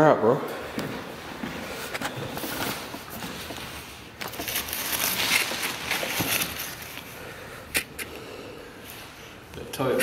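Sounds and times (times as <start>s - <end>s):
packaging crinkling and rustling: 1.9s - 7.1s.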